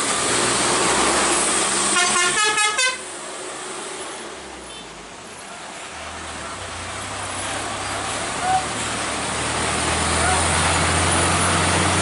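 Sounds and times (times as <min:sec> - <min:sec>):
vehicle horn short toots: 0:02.0 - 0:03.0.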